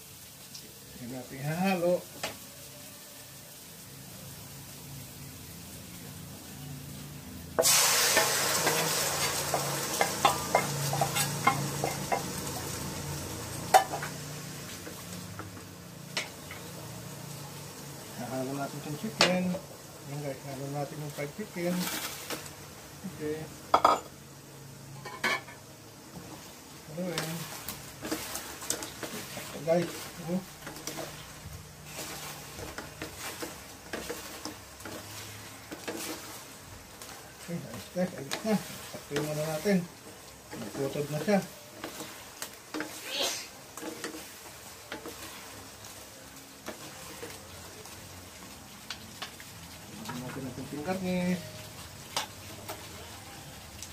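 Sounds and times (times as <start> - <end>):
sauce sizzling in hot wok: 0.0 - 53.9
spatula scraping and tapping pan: 7.6 - 12.6, 27.1 - 43.0, 43.7 - 46.0, 46.6 - 47.4, 52.1 - 52.9.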